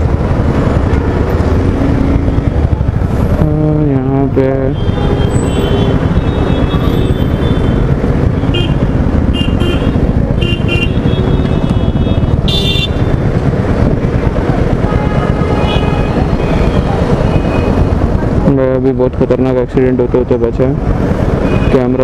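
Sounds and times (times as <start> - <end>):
horns honking: 4.6 - 13.1.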